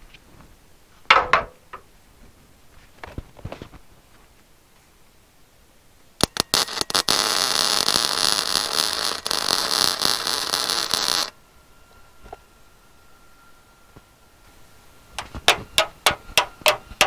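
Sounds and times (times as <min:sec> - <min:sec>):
welder arc crackling: 0:06.2 - 0:12.4, 0:15.1 - 0:17.0.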